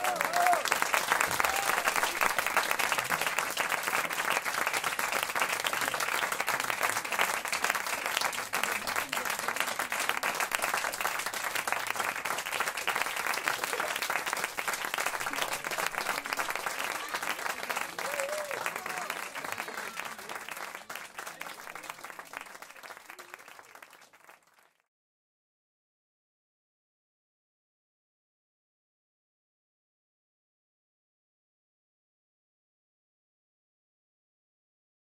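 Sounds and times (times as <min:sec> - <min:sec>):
audience applauding: 0:00.0 - 0:24.8.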